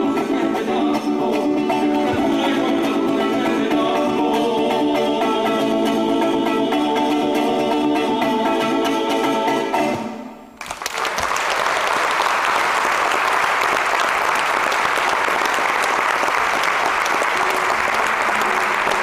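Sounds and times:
audience applause: 10.6 - 19.0.

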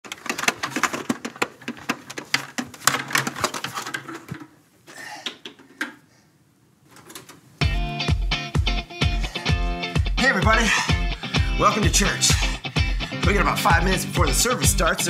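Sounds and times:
rapid irregular clicking and tapping: 0.0 - 4.5.

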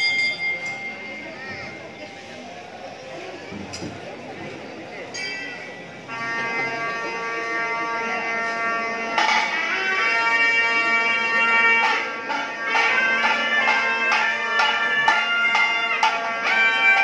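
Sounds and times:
shrill reed pipe melody: 6.0 - 17.0
percussion strokes: 8.2 - 17.0.

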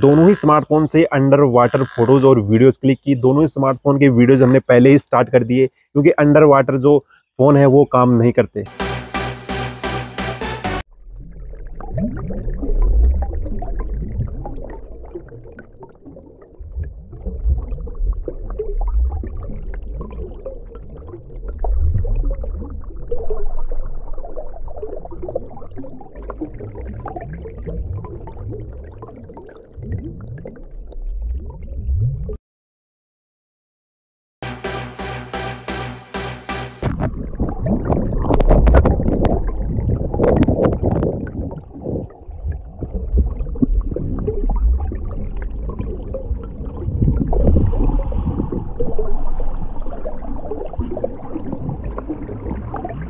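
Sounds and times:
exhaled air bubbles gurgling: 0.0 - 2.7, 10.9 - 32.4, 36.8 - 53.0
muffled rumble of moving water: 10.8 - 32.4, 36.8 - 53.0.

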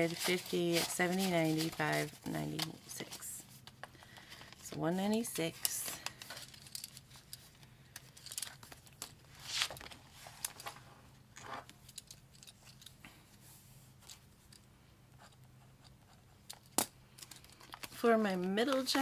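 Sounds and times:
paper and plastic rustling: 0.0 - 12.8, 17.2 - 19.0.

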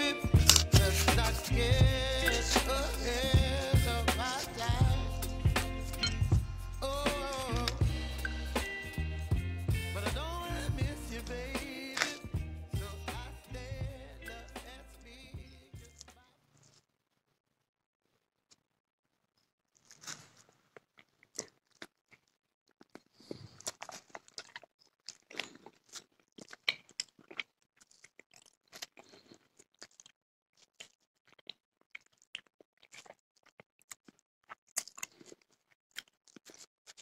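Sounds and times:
chocolate crunching and crackling: 0.0 - 8.7, 10.2 - 12.3, 19.6 - 37.0.

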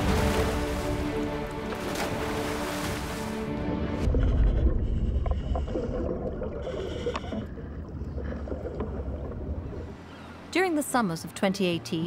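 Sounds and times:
diver breathing bubbles: 4.0 - 10.0
underwater low rumble: 4.0 - 10.0.

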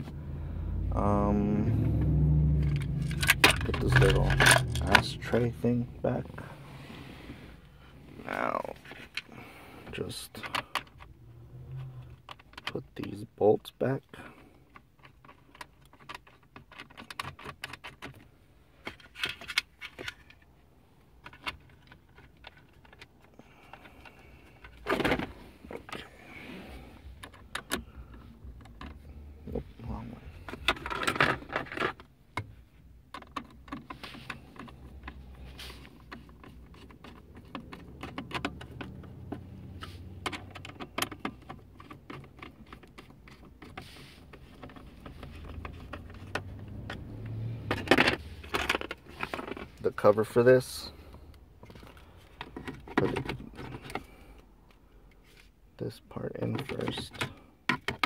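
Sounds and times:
bolts clattering: 2.0 - 6.5
small metallic clicks and rattles: 14.2 - 20.5, 30.4 - 47.0.

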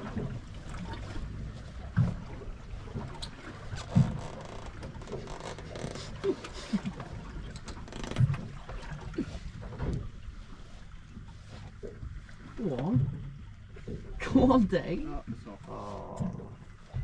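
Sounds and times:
low knocks on hull: 0.0 - 5.8
sea and wind noise: 0.0 - 17.0
water slapping against boat hull: 0.0 - 17.0.

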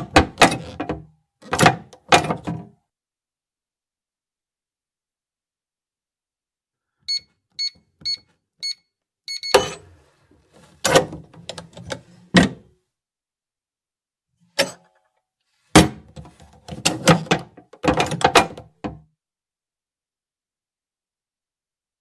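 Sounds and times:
safe keypad beeping: 7.1 - 9.8.

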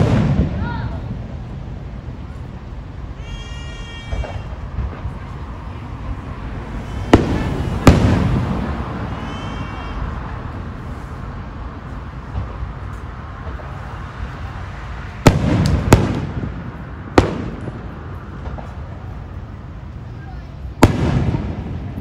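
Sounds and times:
rolling rumble: 0.0 - 22.0.

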